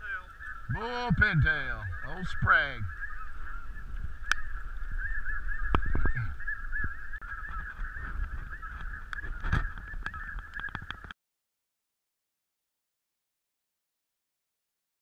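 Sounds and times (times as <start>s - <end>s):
flock of geese honking: 0.0s - 11.1s.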